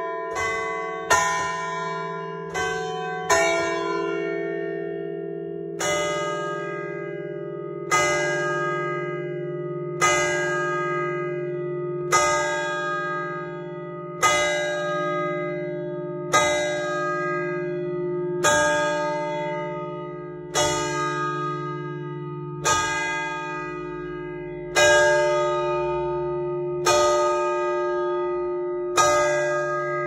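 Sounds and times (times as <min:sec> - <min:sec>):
church bell tolling: 0:00.0 - 0:30.0.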